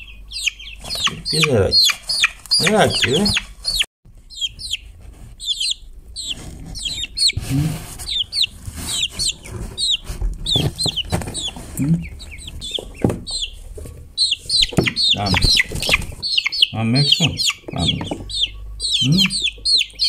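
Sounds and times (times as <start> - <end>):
chicks peeping: 0.0 - 20.0
handling knocks and rustles: 6.4 - 16.2.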